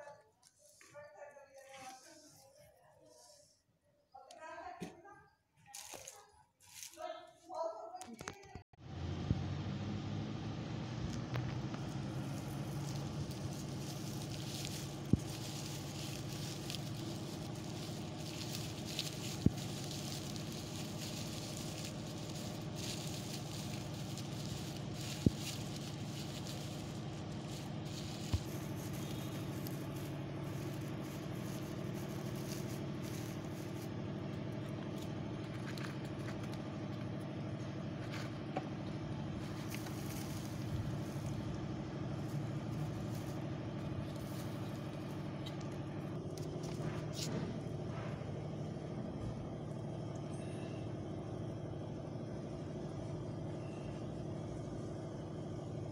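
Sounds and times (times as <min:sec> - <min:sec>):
dry straw rustling and crackling: 0:00.4 - 0:03.4, 0:05.7 - 0:07.0, 0:11.1 - 0:37.2, 0:39.0 - 0:47.3
steady low hum: 0:11.4 - 0:55.9.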